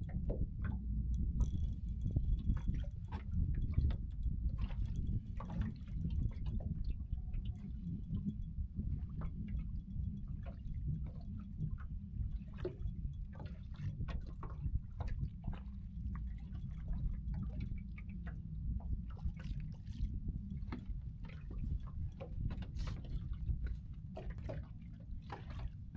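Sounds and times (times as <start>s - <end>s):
steady low rumble: 0.0s - 25.9s
waves splashing against boat: 10.4s - 25.9s.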